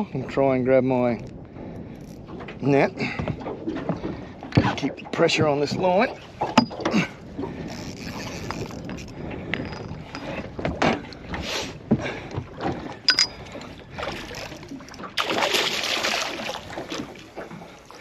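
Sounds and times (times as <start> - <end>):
gear knocking against metal boat: 2.5 - 7.2
fish splashing at surface: 15.2 - 17.2.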